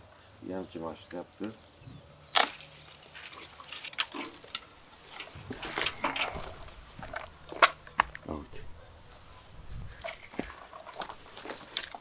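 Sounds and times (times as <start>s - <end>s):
loppers snapping a branch: 2.3s - 8.3s
twigs clicking and rustling: 2.3s - 12.0s.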